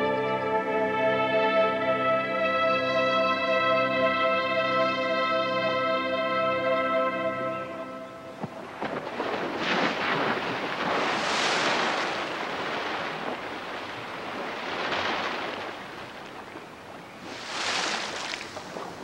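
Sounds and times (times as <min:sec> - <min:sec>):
water splashing: 0:08.2 - 0:19.0
wings beating on water: 0:08.4 - 0:19.0.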